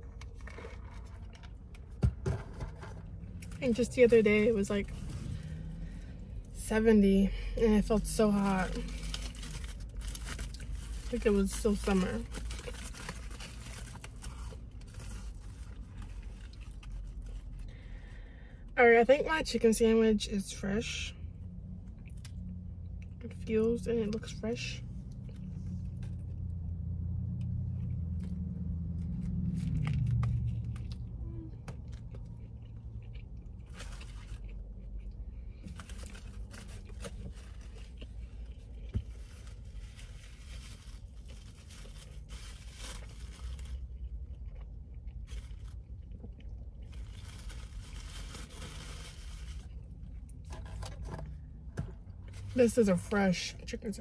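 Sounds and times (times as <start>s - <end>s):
low rumble: 20.3s - 50.5s
crunchy sandwich being chewed: 27.3s - 50.5s.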